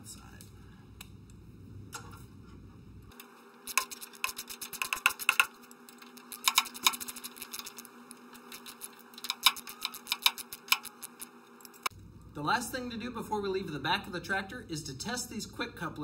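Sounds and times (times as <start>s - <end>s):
wrench ratcheting clicks: 6.3s - 7.8s, 8.5s - 11.3s.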